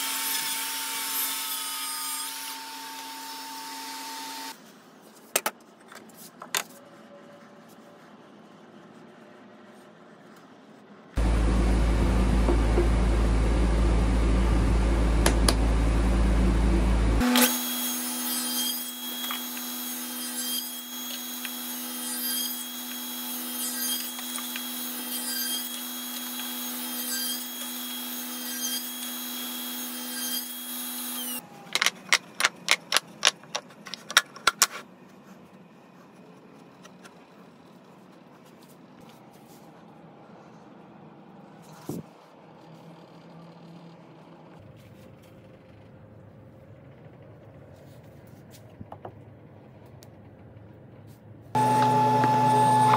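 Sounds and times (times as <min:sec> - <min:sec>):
bass-heavy power tool noise: 0:00.0 - 0:04.6, 0:11.2 - 0:31.9, 0:51.6 - 0:52.9
table saw running: 0:17.2 - 0:31.4, 0:51.6 - 0:52.9.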